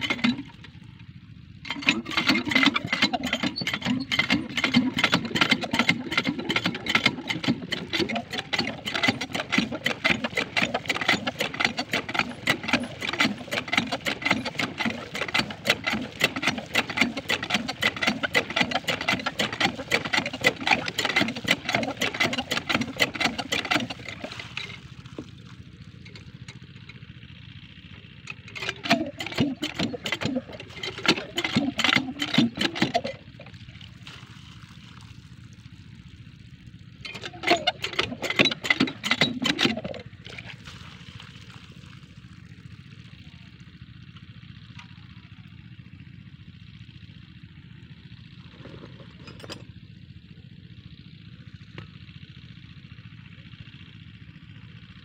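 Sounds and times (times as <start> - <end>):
small diesel engine running: 0.0 - 55.0
water splashing: 1.9 - 26.2, 28.6 - 35.4, 37.2 - 42.0.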